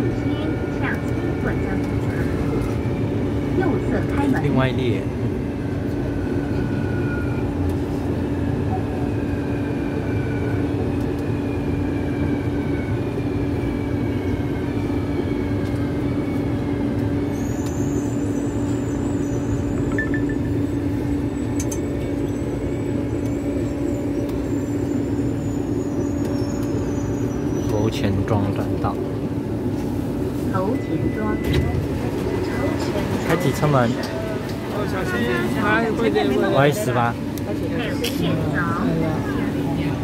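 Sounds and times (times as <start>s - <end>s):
metro train cabin hum: 0.0s - 40.0s
train whine: 0.0s - 40.0s.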